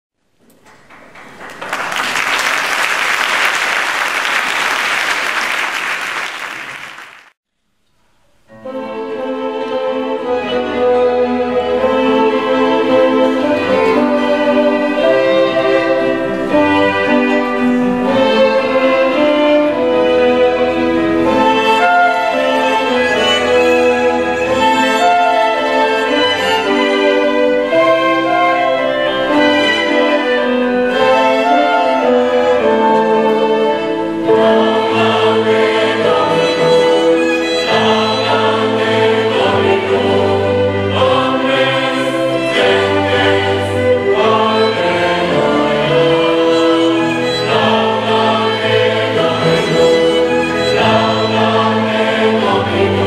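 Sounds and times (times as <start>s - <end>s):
audience applauding: 0.6s - 7.4s
violins playing a tune: 8.6s - 53.0s
deep cello and bass notes: 8.7s - 53.0s.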